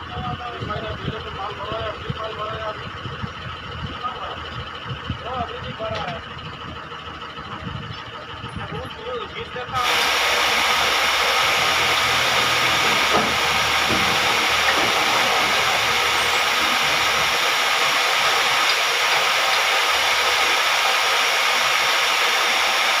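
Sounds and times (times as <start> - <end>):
steady hiss: 9.8 - 23.0.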